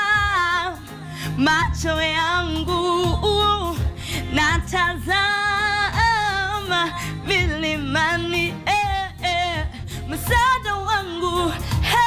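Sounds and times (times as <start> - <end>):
backing music: 0.0 - 12.0
woman singing gospel song: 0.0 - 12.0.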